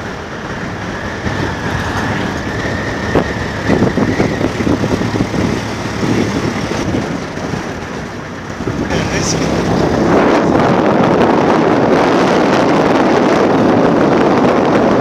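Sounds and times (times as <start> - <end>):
vehicle engine and road noise: 0.0 - 15.0.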